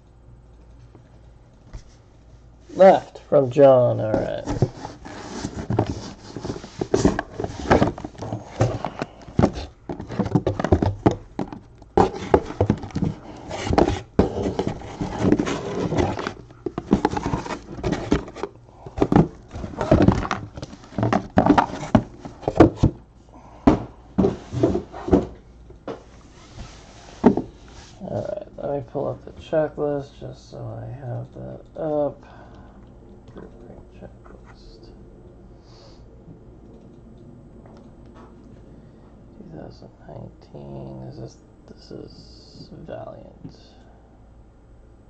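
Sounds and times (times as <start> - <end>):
cardboard knocks and scrapes: 4.2 - 23.0, 23.7 - 27.6
plastic wrap rustling: 12.0 - 22.6.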